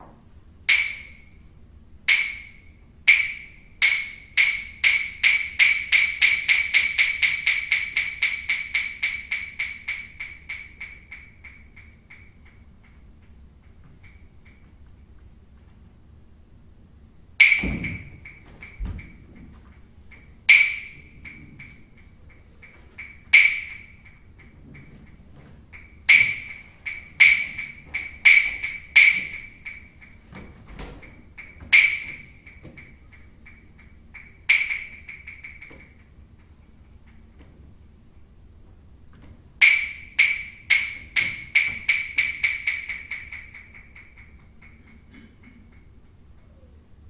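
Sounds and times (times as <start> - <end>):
wood block clacks: 0.0 - 1.3, 2.1 - 14.8, 17.4 - 37.5, 39.6 - 46.7
low thuds: 17.5 - 22.0.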